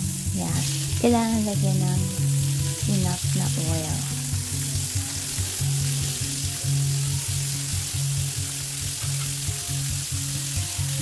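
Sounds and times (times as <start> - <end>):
pork chops sizzling in oil: 0.0 - 11.0.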